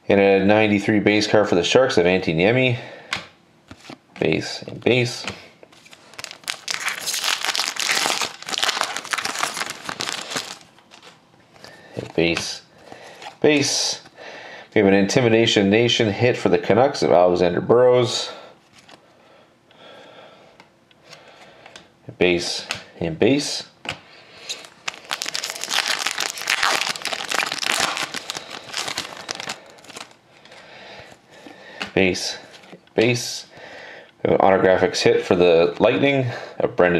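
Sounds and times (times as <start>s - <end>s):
card pack wrapper crinkling: 5.8s - 11.2s, 24.5s - 30.2s.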